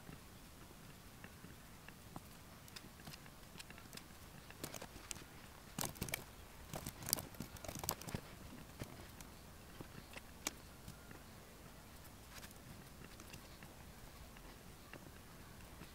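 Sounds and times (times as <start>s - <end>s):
laptop keyboard typing: 5.8s - 9.3s.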